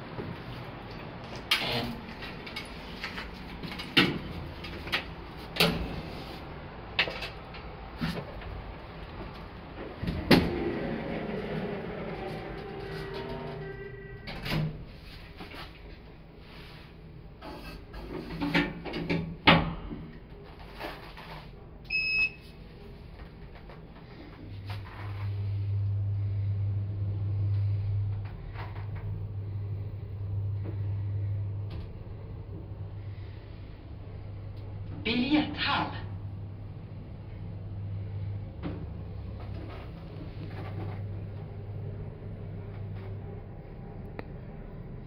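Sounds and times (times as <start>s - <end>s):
steady low hum: 0.0s - 18.0s, 21.6s - 45.0s
elevator clunks and knocks: 10.0s - 13.6s
elevator button beep: 21.9s - 22.4s.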